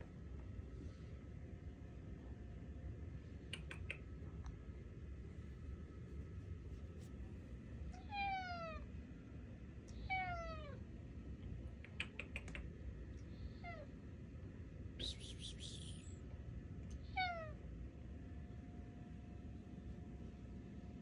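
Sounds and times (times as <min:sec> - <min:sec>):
cat meowing: 0:07.9 - 0:08.9, 0:10.0 - 0:10.8, 0:17.0 - 0:17.6
quick clicks: 0:11.8 - 0:12.7.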